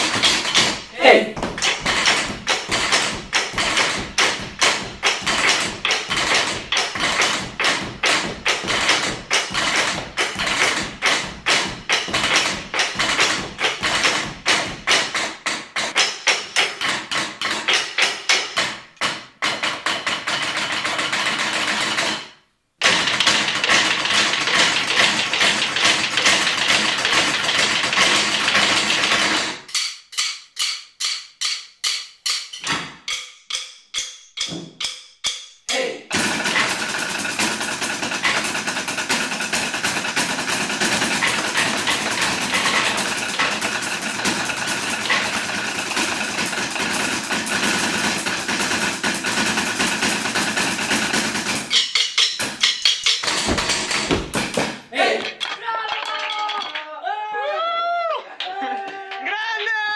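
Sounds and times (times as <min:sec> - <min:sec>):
drumsticks tapping on chairs: 0:00.0 - 0:21.1, 0:23.1 - 0:35.9, 0:51.7 - 0:56.8.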